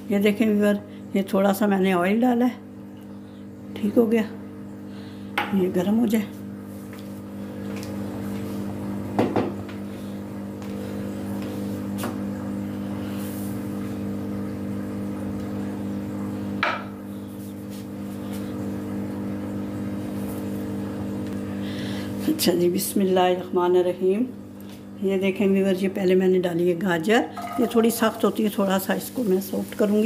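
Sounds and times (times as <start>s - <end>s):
steady mechanical hum: 0.0s - 30.0s.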